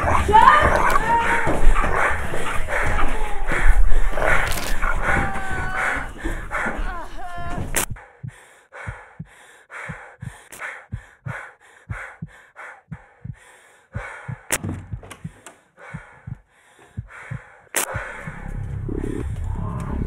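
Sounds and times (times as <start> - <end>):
person panting: 0.0 - 18.4
sharp clicks: 4.2 - 5.0, 17.3 - 18.4
soft low thumps: 5.0 - 20.0.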